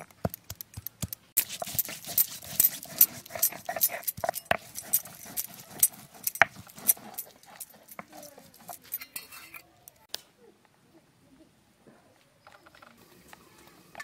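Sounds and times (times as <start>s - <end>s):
stone roller grinding on stone: 1.4s - 9.6s.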